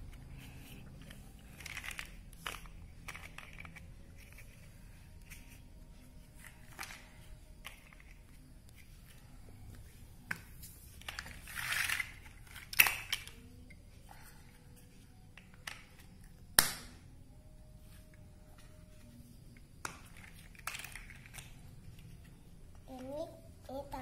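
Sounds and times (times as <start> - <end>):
plastic toy bricks clicking: 1.0 - 5.4, 10.3 - 13.5, 19.8 - 21.6.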